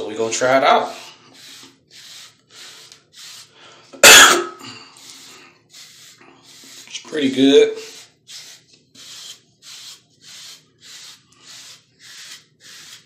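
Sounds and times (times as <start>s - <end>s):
person coughing: 4.0s - 4.9s
brush swishing over hair: 5.0s - 13.0s.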